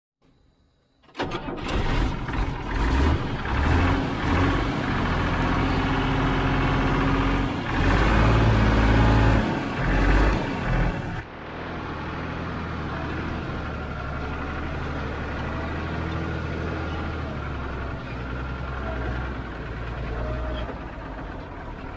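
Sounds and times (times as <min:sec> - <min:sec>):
diesel engine cranking and running: 0:01.0 - 0:21.9.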